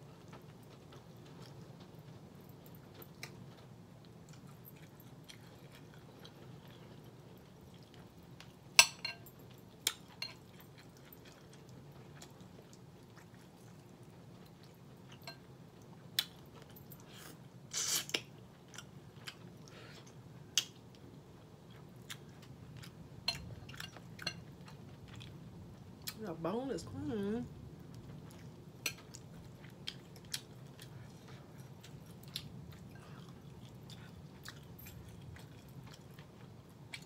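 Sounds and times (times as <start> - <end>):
low steady hum: 0.0 - 37.0
wet chewing and mouth noises: 0.1 - 8.8, 9.4 - 26.2, 27.8 - 37.0
fork clinking against glass bowl: 8.8 - 9.3.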